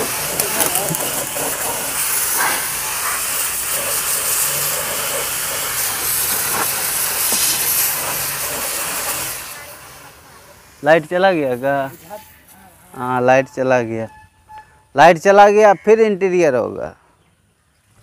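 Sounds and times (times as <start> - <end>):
pressure washer spray hissing: 0.0 - 13.2.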